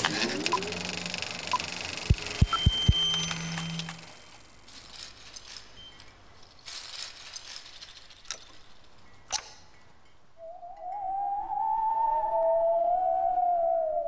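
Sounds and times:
low hum: 0:00.0 - 0:04.6
small pieces rattling in glass jar: 0:03.6 - 0:09.2.

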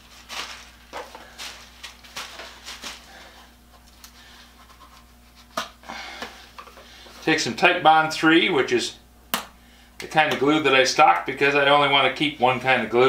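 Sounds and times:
glove rustling: 0:00.0 - 0:05.5.

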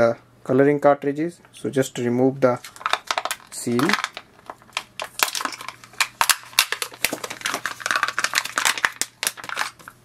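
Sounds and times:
plastic seal peeling and crinkling: 0:02.6 - 0:10.0.

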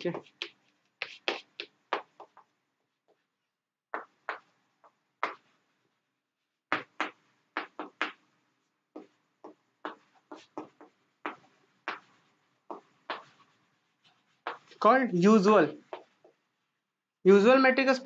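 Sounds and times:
chalk writing on chalkboard: 0:00.1 - 0:02.5, 0:09.0 - 0:14.8.

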